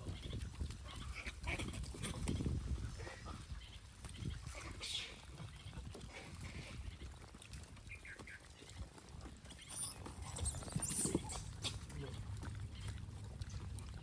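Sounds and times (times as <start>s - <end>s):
monkeys rustling and scuffling: 0.0s - 14.0s
monkey high squeaks: 9.6s - 11.8s.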